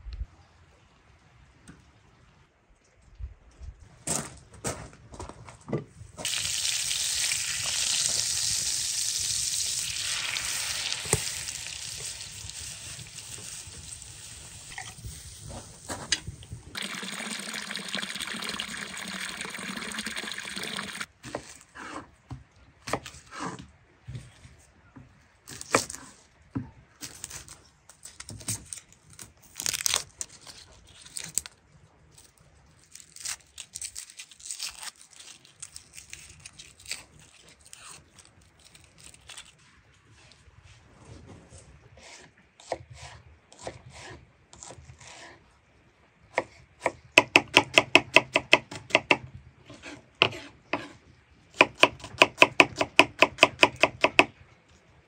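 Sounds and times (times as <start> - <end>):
food tearing and rustling: 27.0 - 40.3.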